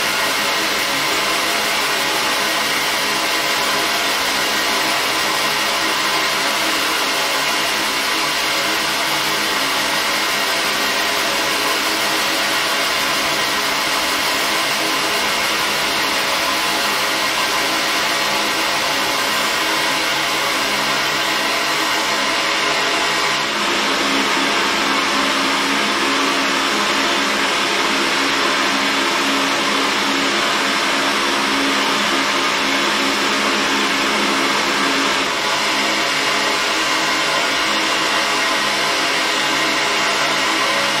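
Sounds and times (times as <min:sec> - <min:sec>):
machine hum: 0:00.0 - 0:41.0.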